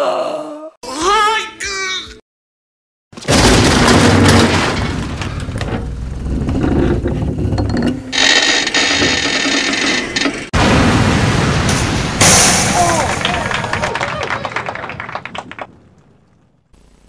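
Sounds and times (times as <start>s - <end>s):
loud mechanical rumbling: 3.3s - 10.6s.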